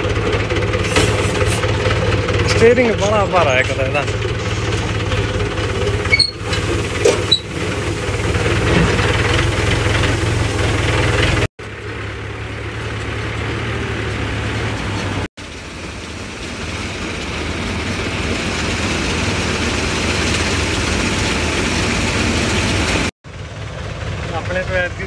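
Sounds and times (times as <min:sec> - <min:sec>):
combine harvester running: 0:00.0 - 0:25.0
tractor diesel engine running: 0:00.0 - 0:25.0
grain pouring hiss: 0:00.7 - 0:01.9, 0:04.4 - 0:11.5, 0:15.4 - 0:23.1.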